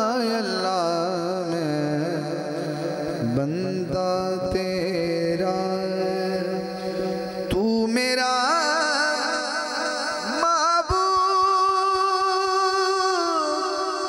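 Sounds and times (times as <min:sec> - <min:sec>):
man singing into a microphone: 0:00.0 - 0:14.0.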